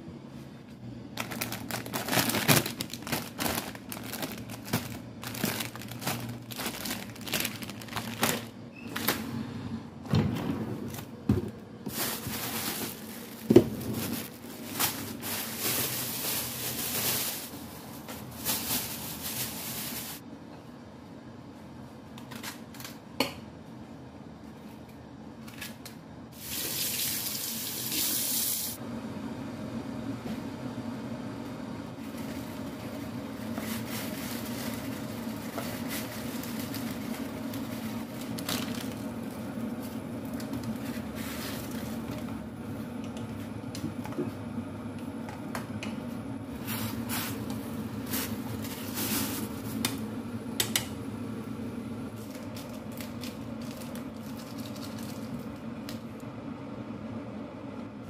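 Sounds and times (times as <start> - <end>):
low rumble of water heating: 25.8 - 58.0
kitchen tap running: 26.4 - 28.8.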